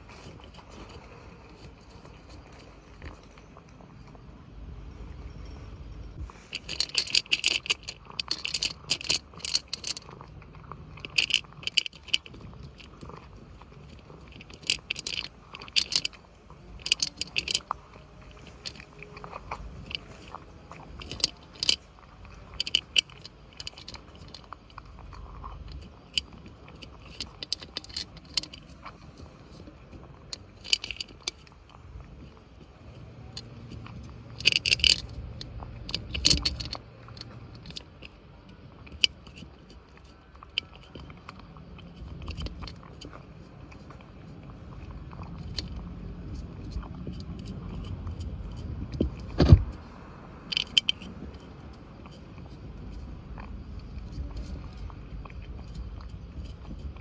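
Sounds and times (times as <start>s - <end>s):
cat crunching dry kibble: 0.0s - 5.6s, 6.2s - 57.0s.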